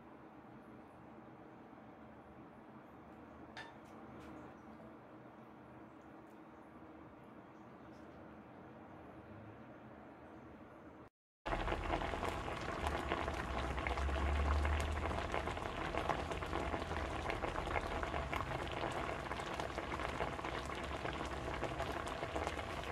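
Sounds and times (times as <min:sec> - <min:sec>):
dense crackling with tiny pops: 0:11.5 - 0:22.9.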